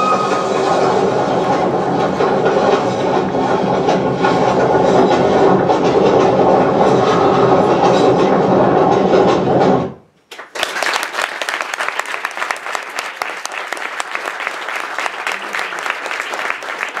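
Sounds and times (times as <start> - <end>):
steady pitched tone: 0.0 - 9.6
audience applause: 10.3 - 17.0.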